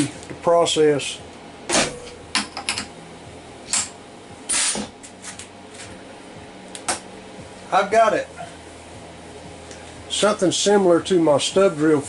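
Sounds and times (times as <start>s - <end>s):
faint machine hum: 0.0s - 12.0s.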